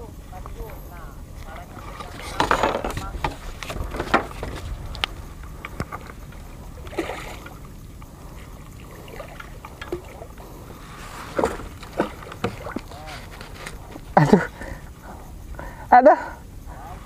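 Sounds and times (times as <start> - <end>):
low rumble: 0.0 - 13.0
light clicks and knocks: 0.4 - 6.4
fish splashing in water: 3.8 - 14.2.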